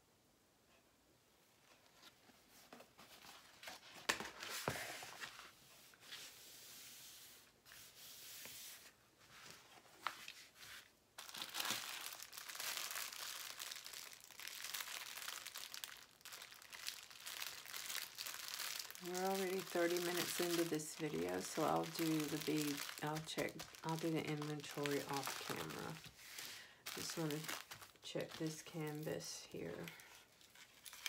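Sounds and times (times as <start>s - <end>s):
plastic crinkling and rustling: 9.4s - 31.0s.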